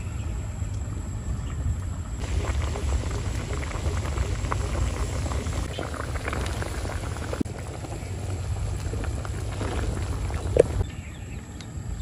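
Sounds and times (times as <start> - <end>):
steady low rumble: 0.0 - 12.0
soup boiling and bubbling: 1.8 - 11.9.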